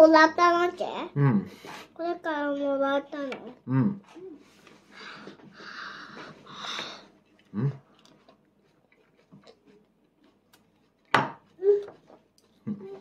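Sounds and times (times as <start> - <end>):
toddler chewing: 5.2 - 13.0
toddler humming: 11.6 - 12.0.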